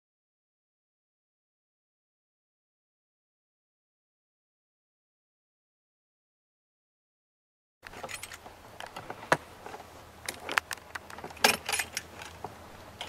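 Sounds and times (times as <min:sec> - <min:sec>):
metal parts clicking and clinking: 0:07.8 - 0:09.1, 0:10.2 - 0:13.0.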